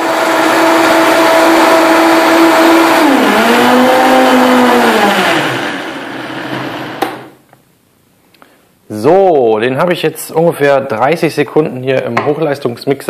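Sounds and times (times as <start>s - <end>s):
blender motor running: 0.0s - 7.4s.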